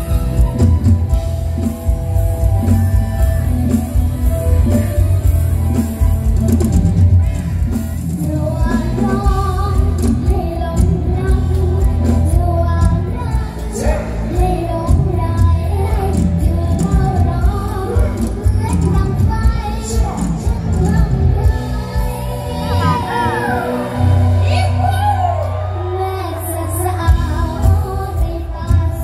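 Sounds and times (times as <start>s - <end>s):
loud band music through a pa: 0.0s - 25.9s
girl singing: 8.2s - 29.0s.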